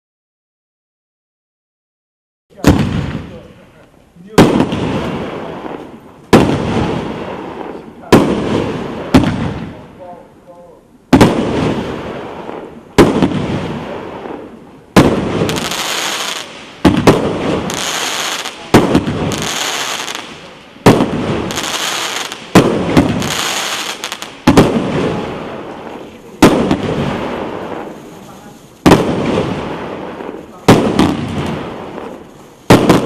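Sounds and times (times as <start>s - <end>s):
fireworks cake firing: 2.6s - 10.2s, 11.1s - 33.0s.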